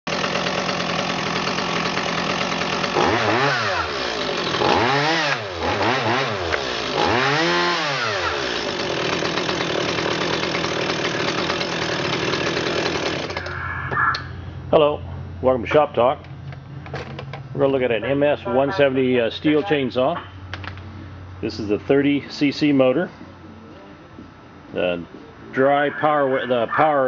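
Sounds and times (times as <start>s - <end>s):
chainsaw engine idling and revving: 0.0s - 13.5s.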